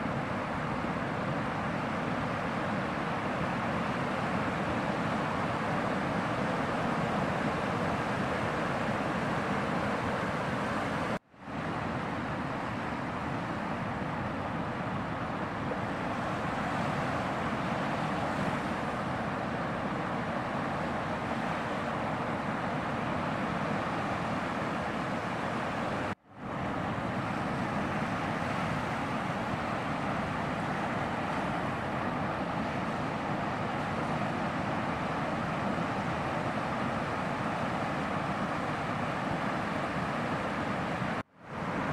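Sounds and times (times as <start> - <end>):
ocean surf breaking: 0.0 - 41.9.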